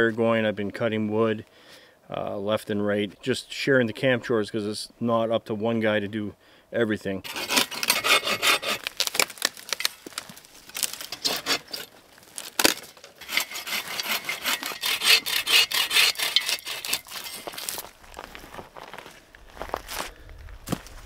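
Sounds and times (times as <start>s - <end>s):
hand saw cutting wood: 7.2s - 9.2s, 10.8s - 17.8s.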